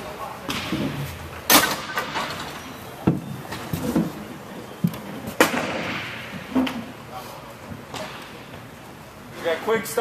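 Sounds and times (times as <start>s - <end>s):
hockey sticks and puck striking boards: 5.4s - 6.8s.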